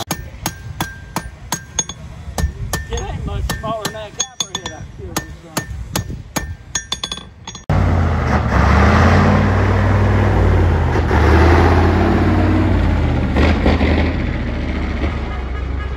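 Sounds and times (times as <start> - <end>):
hammer ringing on anvil: 0.1 - 7.7
truck engine driving past: 7.7 - 15.9.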